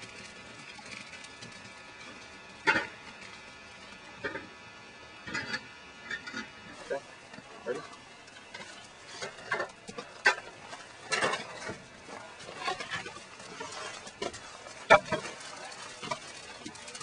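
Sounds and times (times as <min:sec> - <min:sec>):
wood and metal rod clattering: 0:08.6 - 0:17.0.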